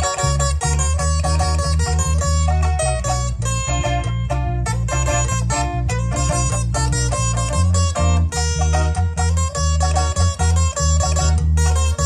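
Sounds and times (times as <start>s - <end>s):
plucked-string melody: 0.0s - 12.0s
pulsing bass line: 0.0s - 12.0s.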